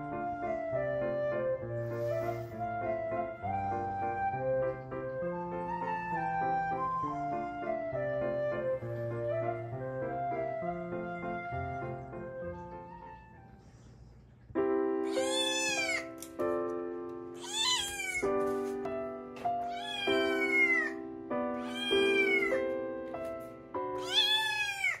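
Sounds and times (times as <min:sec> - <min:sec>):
kitten meowing: 0:15.1 - 0:16.2, 0:17.4 - 0:18.3, 0:19.6 - 0:21.0, 0:21.6 - 0:22.6, 0:24.0 - 0:25.0.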